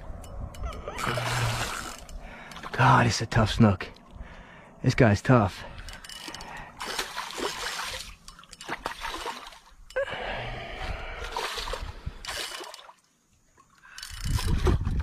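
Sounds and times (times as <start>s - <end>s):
fish splashing at water surface: 6.8s - 9.7s.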